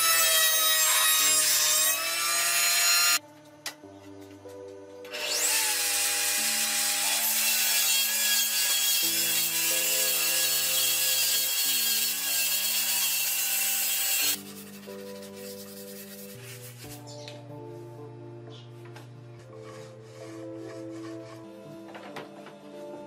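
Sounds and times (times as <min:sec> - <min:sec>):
table saw cutting wood: 0:00.0 - 0:03.2, 0:05.1 - 0:16.9, 0:19.4 - 0:22.0
background music: 0:00.0 - 0:23.0.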